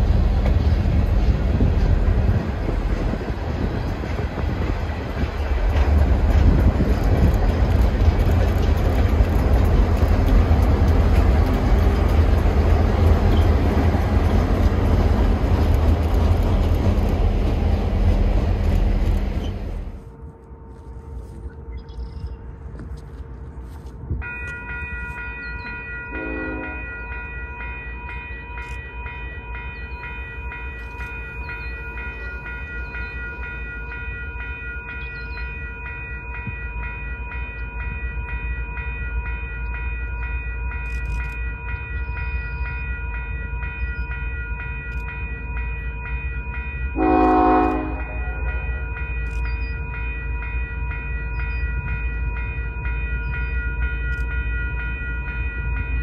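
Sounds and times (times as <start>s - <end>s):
train rumble: 0.0s - 56.0s
bell ringing: 24.2s - 56.0s
locomotive horn: 26.1s - 26.9s, 47.0s - 48.6s.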